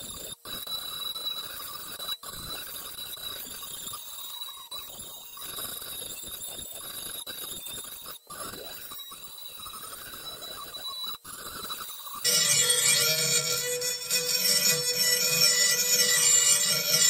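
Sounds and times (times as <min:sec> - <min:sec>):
rotary tool grinding metal: 0:11.6 - 0:17.0.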